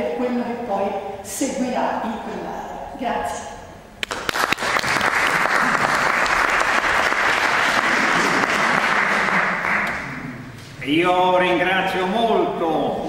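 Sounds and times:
audience applauding: 4.0s - 10.4s.

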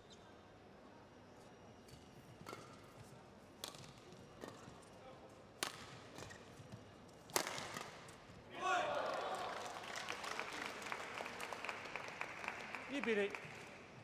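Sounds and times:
rackets hitting shuttlecock: 2.4s - 2.8s, 3.6s - 4.6s, 5.6s - 6.6s, 7.2s - 8.2s.

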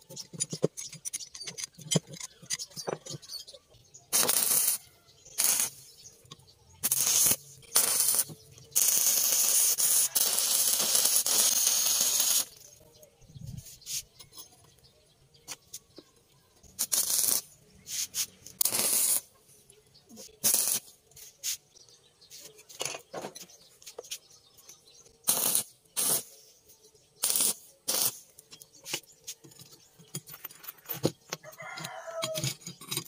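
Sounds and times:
arc welder crackling and hissing: 4.1s - 6.2s, 6.8s - 12.8s, 16.7s - 19.4s, 20.2s - 22.5s, 25.2s - 26.4s, 27.2s - 29.4s.

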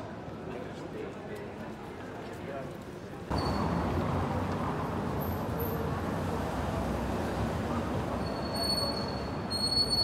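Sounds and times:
faint voices of passers-by: 0.0s - 10.0s
road traffic hum: 3.3s - 10.0s.

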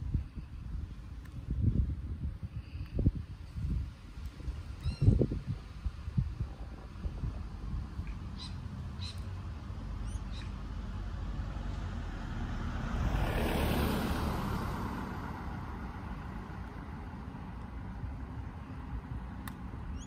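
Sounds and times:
low steady rumble: 0.0s - 13.1s
vehicle passing by: 8.5s - 19.0s.

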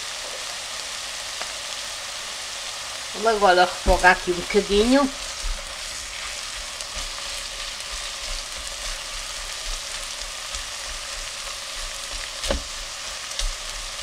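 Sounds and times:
sausage sizzling in a pot: 0.0s - 14.0s
spatula stirring: 4.6s - 14.0s
sharp tap: 12.4s - 12.7s.

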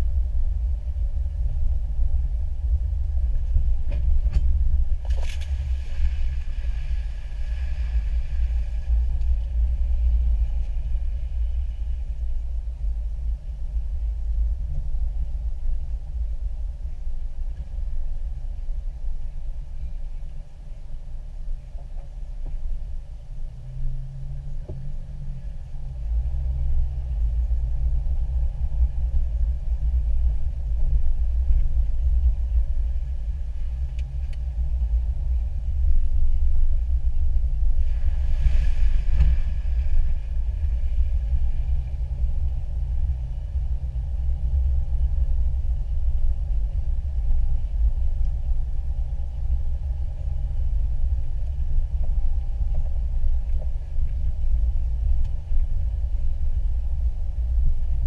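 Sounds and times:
vehicle engine rumble: 0.0s - 58.0s
rush of hissing noise: 37.7s - 42.7s.

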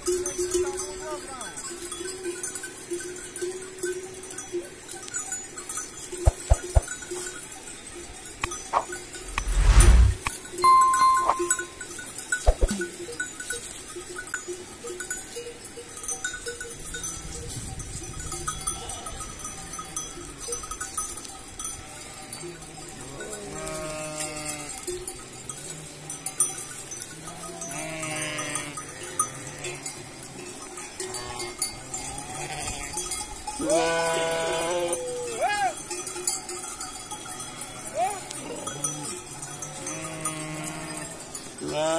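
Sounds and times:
animal bells clinking: 0.0s - 41.9s
sheep and goats bleating: 21.7s - 35.8s, 37.2s - 41.9s.

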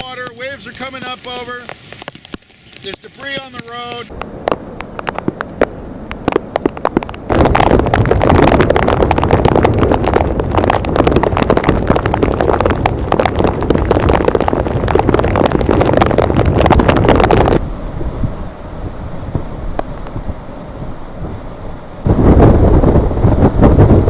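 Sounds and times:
sharp pops: 0.0s - 17.6s
gusting wind buffeting microphone: 0.0s - 24.0s.

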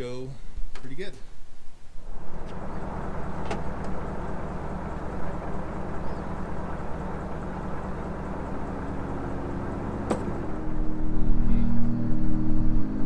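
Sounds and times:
boat engine idling: 2.0s - 10.9s.

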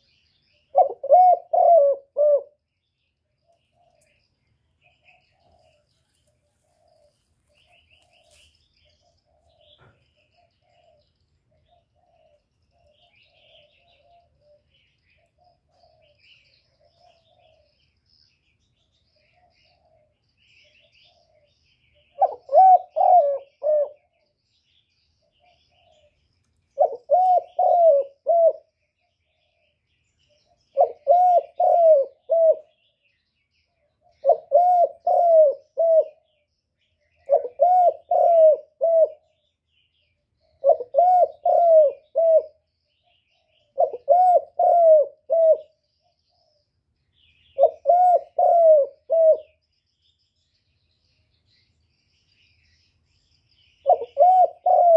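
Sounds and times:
dove cooing: 0.6s - 2.6s, 4.9s - 17.8s, 19.2s - 24.2s, 25.3s - 26.2s, 26.8s - 29.7s, 30.3s - 32.9s, 34.0s - 36.3s, 37.2s - 39.4s, 40.4s - 45.8s, 47.4s - 49.6s, 53.8s - 54.9s.

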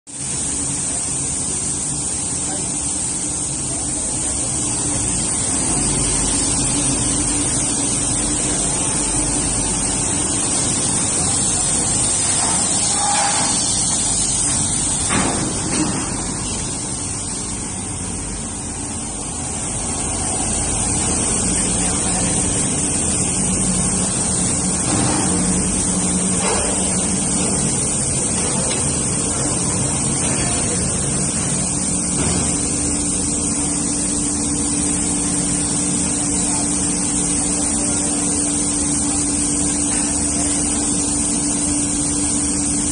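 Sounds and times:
water spray and blowers hissing: 0.1s - 42.9s.

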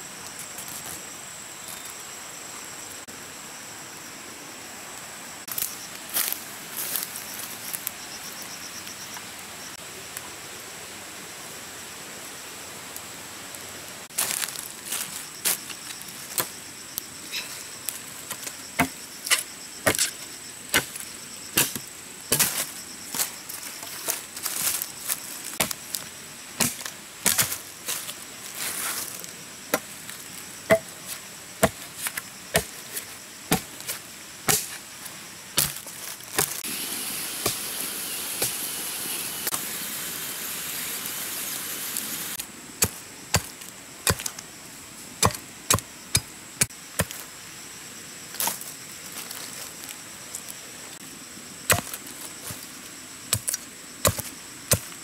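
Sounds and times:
steady high hiss: 0.0s - 55.0s
machete chopping wood: 18.8s - 20.1s, 30.7s - 30.9s, 31.6s - 31.8s, 32.5s - 32.8s, 33.5s - 33.8s, 34.4s - 34.8s, 35.6s - 35.8s, 42.8s - 43.5s, 44.1s - 44.3s, 45.2s - 46.3s, 51.7s - 52.0s, 53.3s - 54.9s.

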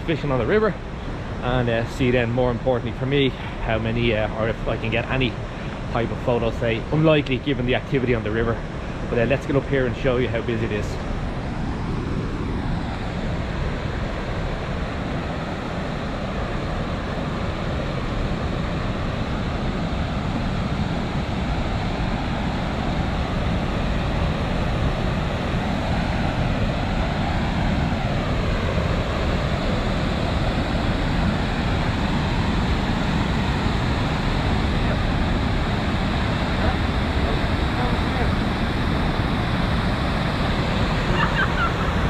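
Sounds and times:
water rushing over weir: 0.0s - 42.0s.

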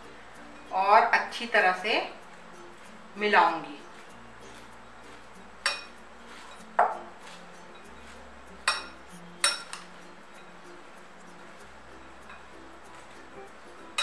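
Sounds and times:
spoon clinking against glass bowl: 5.6s - 10.5s.

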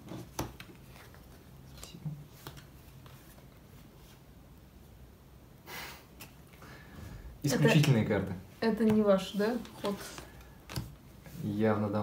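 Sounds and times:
playing cards tapping and clicking: 0.0s - 3.2s, 8.8s - 11.0s
playing cards rustling: 0.0s - 4.2s, 8.8s - 11.3s.

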